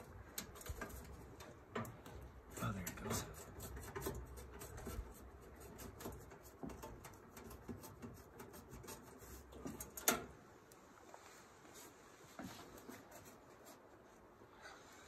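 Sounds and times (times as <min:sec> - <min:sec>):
screwdriver scraping sheet metal: 0:02.4 - 0:10.3.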